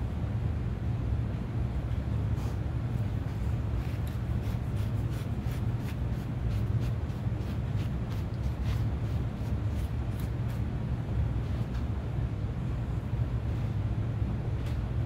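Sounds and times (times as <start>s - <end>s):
steady low hum: 0.0s - 15.0s
cloth rag rubbing on wood: 3.2s - 10.3s.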